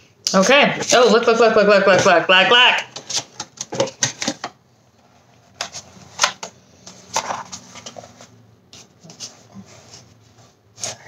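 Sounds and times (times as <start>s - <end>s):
plastic mask rustling: 2.9s - 11.0s.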